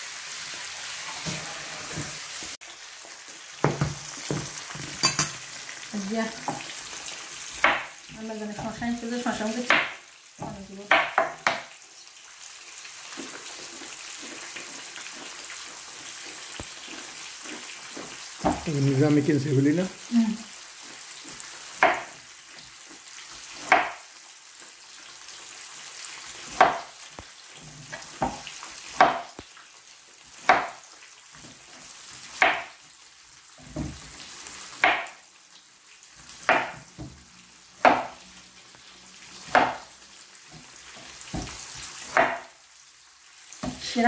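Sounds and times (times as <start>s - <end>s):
fish sizzling in oil: 0.0s - 44.0s
knife chopping on plastic board: 7.6s - 7.9s, 9.7s - 11.7s, 21.8s - 22.2s, 23.6s - 24.0s, 26.5s - 26.9s, 29.0s - 29.4s, 30.4s - 30.8s, 32.4s - 32.7s, 34.8s - 35.2s, 36.4s - 37.2s, 37.8s - 38.2s, 39.5s - 39.9s, 41.3s - 42.5s.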